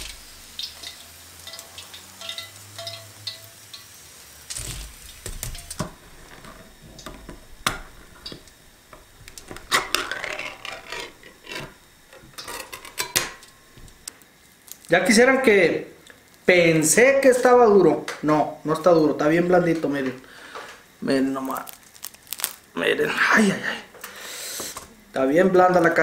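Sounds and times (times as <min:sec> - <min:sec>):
can lid tearing scrapes: 0:09.3 - 0:11.8.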